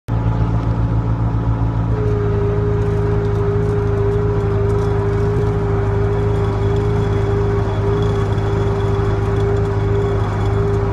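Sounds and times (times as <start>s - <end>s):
skid steer engine running: 0.1s - 10.9s
hydraulic winch whine: 1.8s - 10.9s.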